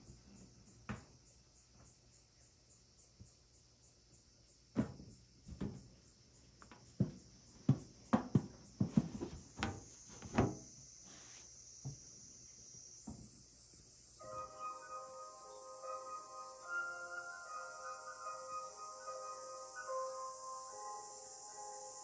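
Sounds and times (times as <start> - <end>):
insect chirring: 6.0 - 22.0.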